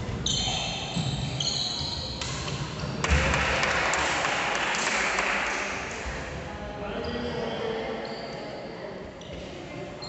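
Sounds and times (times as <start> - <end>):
spectators clapping: 3.0 - 6.0.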